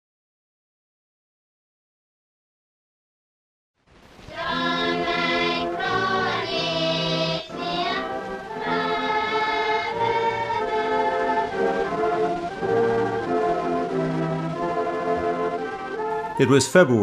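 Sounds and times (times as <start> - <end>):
choir singing: 4.3 - 17.0.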